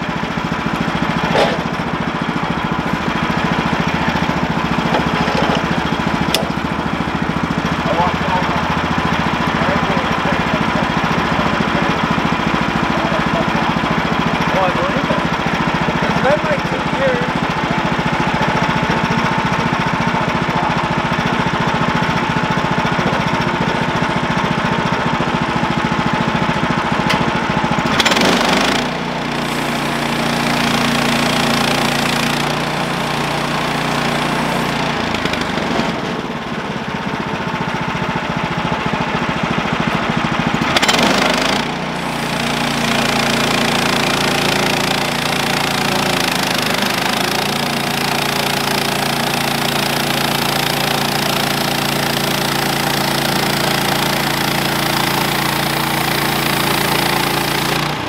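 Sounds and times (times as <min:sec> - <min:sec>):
gas engine running: 0:00.0 - 0:58.0
band blade cutting log: 0:01.2 - 0:01.8, 0:40.7 - 0:45.0.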